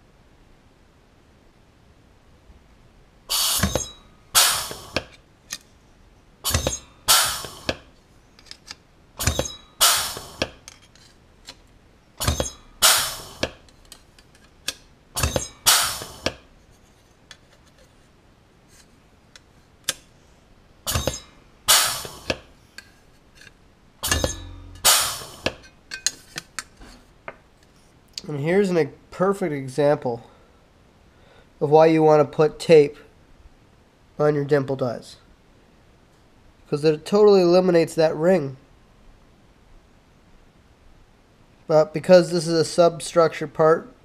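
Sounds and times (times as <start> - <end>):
thin metal sheet ringing: 3.3 - 5.0, 6.5 - 7.8, 9.2 - 10.4, 12.2 - 13.6, 15.2 - 16.3, 20.9 - 22.4, 24.0 - 26.1
metallic clacks of dimpler: 3.3 - 5.6, 6.5 - 16.5, 20.9 - 22.5, 24.0 - 26.7.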